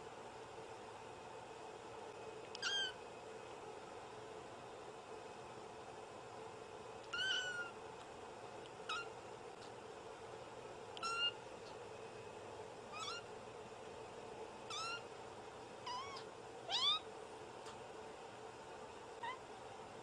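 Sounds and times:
kitten mewing: 2.6s - 3.0s, 7.1s - 7.8s, 8.9s - 9.1s, 11.0s - 11.4s, 12.9s - 13.2s, 14.7s - 15.0s, 15.8s - 17.0s.

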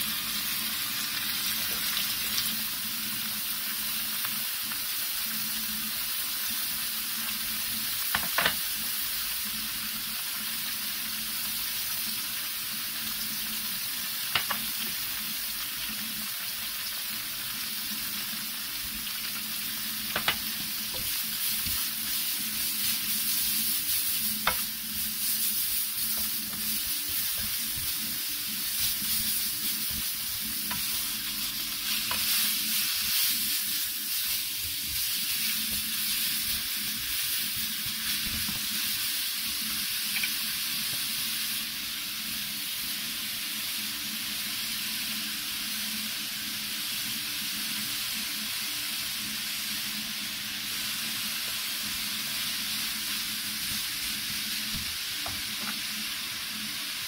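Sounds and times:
vegetables sizzling in a frying pan: 0.0s - 57.0s.

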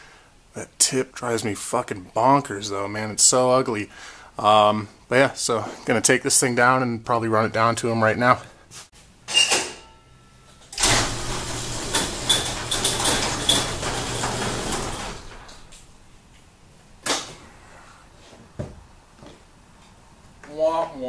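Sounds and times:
hydraulic power unit humming: 10.7s - 16.0s.

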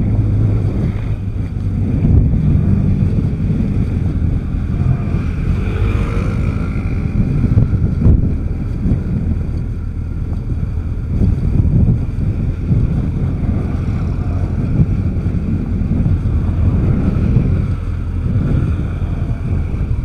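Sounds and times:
motorcycle engine running: 0.0s - 20.0s
wind buffeting microphone: 0.0s - 20.0s.

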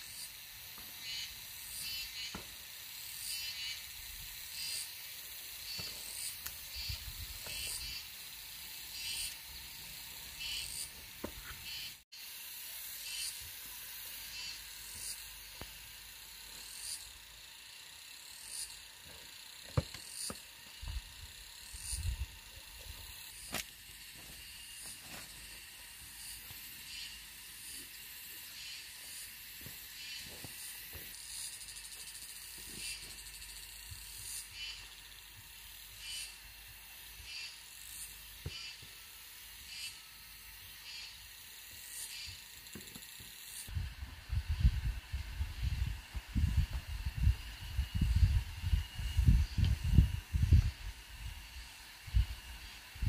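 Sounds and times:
insect chirping: 0.0s - 53.0s
steady high hiss: 0.0s - 53.0s
hoe blade striking soil: 19.6s - 20.5s, 23.3s - 25.5s.

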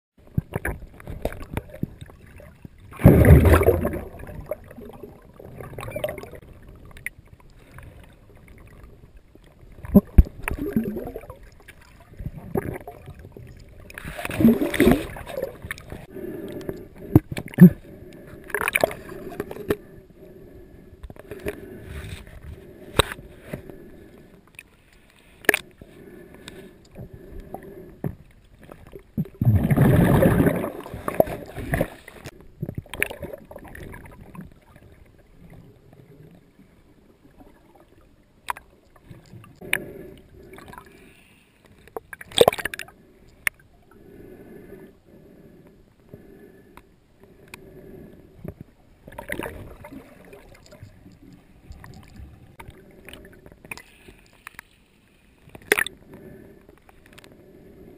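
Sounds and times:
underwater gurgling and bubbling: 0.2s - 24.0s, 25.5s - 41.0s, 42.0s - 44.8s, 47.7s - 53.8s
sharp clicks underwater: 0.3s - 8.8s, 9.7s - 19.9s, 21.0s - 34.8s, 38.4s - 39.9s, 41.6s - 43.6s, 48.4s - 54.7s, 55.4s - 57.3s
rush of water noise: 2.9s - 4.6s.

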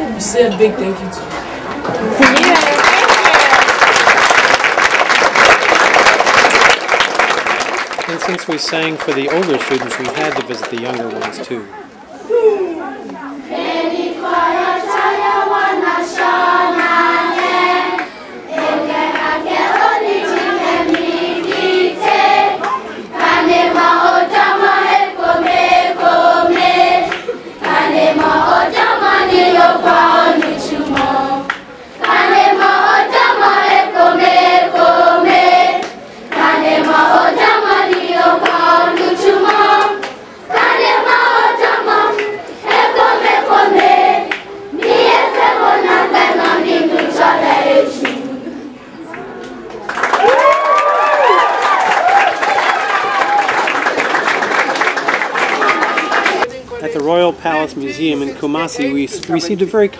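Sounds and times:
choir singing: 13.4s - 48.8s.

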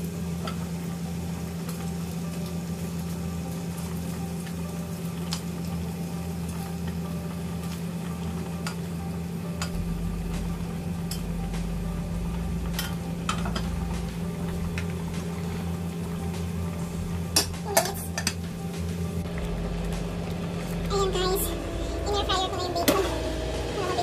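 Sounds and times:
bacon sizzling in a frying pan: 0.0s - 11.4s
steady low hum: 0.0s - 24.0s.

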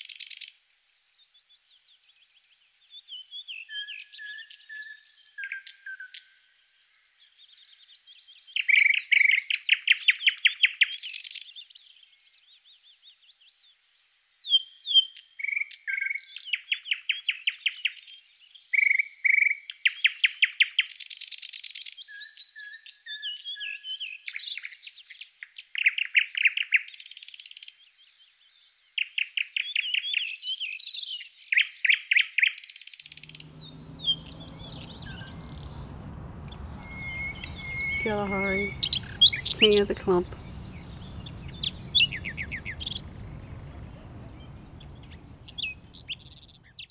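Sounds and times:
songbirds trilling and chirping: 33.1s - 46.9s.

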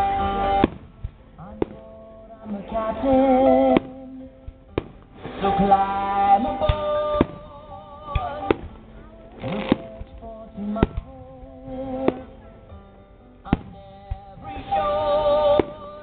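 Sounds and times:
firework shells bursting: 0.0s - 12.4s
music and singing: 0.0s - 16.0s.

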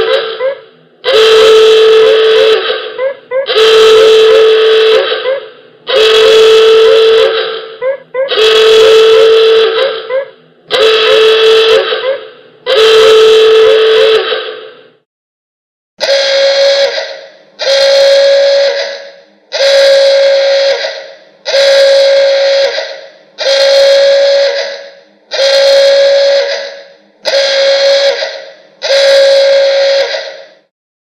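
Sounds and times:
alarm horn blasts: 0.0s - 15.0s, 16.0s - 30.7s.

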